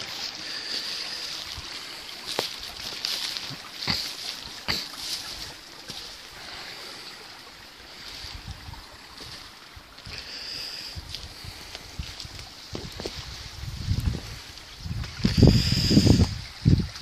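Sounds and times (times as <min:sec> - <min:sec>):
footsteps on gravel and twigs: 0:00.0 - 0:06.3, 0:09.1 - 0:10.2, 0:11.0 - 0:15.6
steady hiss: 0:00.0 - 0:16.7.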